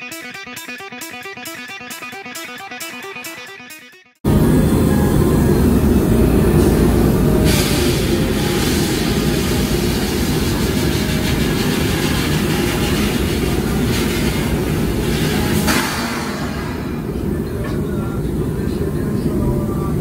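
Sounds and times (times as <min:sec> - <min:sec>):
sandblasting hiss: 0:06.4 - 0:17.2.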